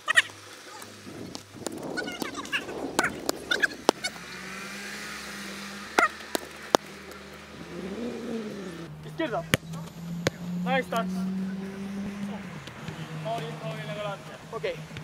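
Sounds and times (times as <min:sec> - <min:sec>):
football being kicked: 0:09.4 - 0:10.4.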